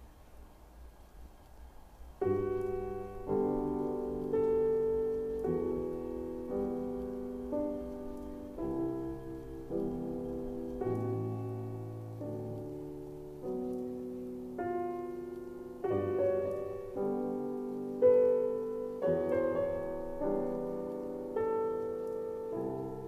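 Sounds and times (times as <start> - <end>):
faint low background noise: 0.0 - 23.0
solo piano chords: 0.0 - 23.0.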